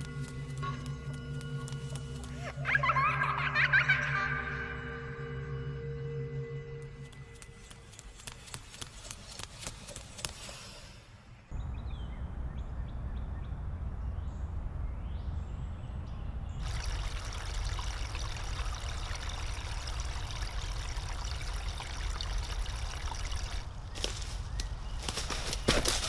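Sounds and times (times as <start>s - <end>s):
stream trickling and splashing: 16.6s - 24.5s.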